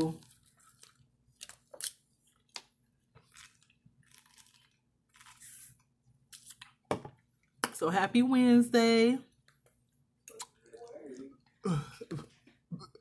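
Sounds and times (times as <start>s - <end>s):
wet mouth clicks: 10.2s - 10.6s.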